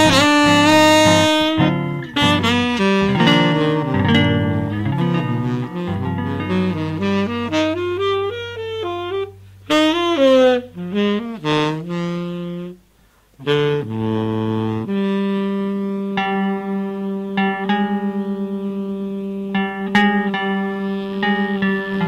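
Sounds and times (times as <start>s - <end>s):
soprano saxophone melody: 0.0s - 22.0s.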